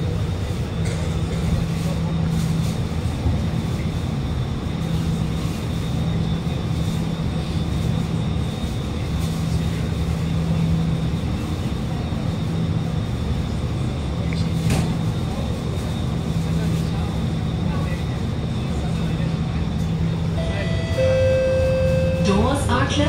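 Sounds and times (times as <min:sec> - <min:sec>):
train equipment drone: 0:00.0 - 0:23.0
faint high whine: 0:20.3 - 0:22.6.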